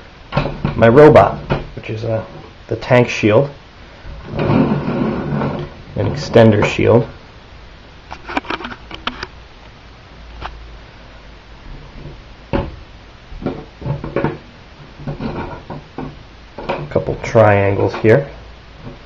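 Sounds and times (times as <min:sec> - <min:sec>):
circuit boards clicking and knocking: 0:08.1 - 0:09.3, 0:13.4 - 0:14.4.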